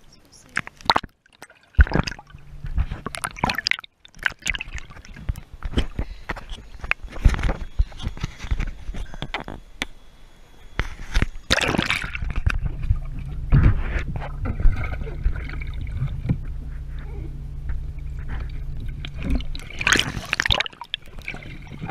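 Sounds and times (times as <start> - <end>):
water splash: 0.6 - 5.4, 11.5 - 13.3, 18.3 - 21.9
muffled underwater rumble and bubbling: 1.7 - 21.9.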